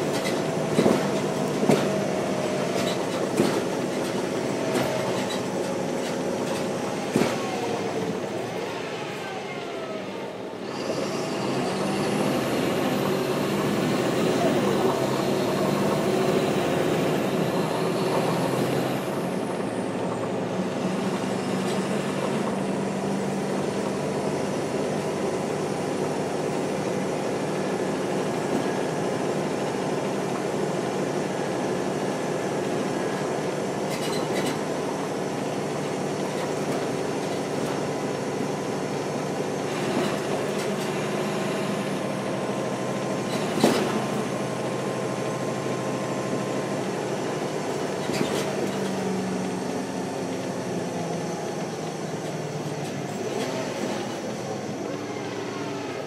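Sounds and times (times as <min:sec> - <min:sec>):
bus diesel engine drone: 0:00.0 - 0:56.0.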